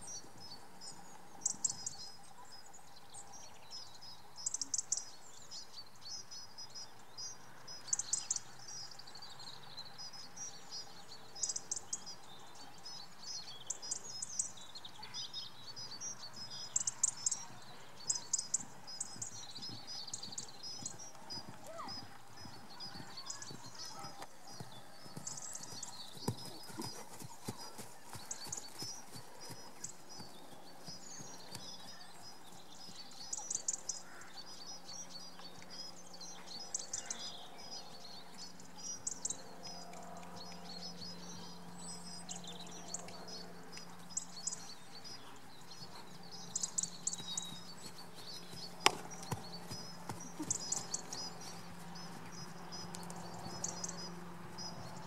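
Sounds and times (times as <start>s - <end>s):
horse hoofbeats on sand: 17.3s - 33.1s, 45.1s - 52.6s.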